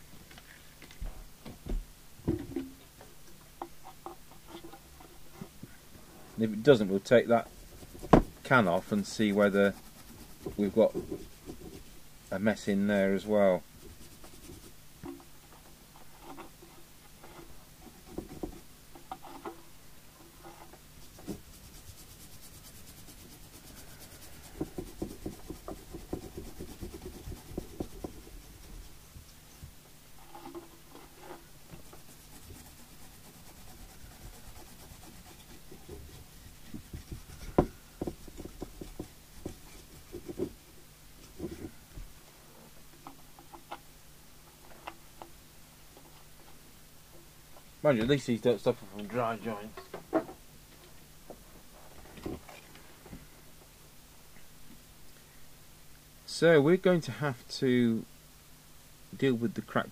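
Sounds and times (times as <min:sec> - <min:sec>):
rubbing and scraping on circuit board: 0:06.4 - 0:14.8, 0:15.9 - 0:19.7, 0:20.3 - 0:29.6, 0:30.2 - 0:41.8.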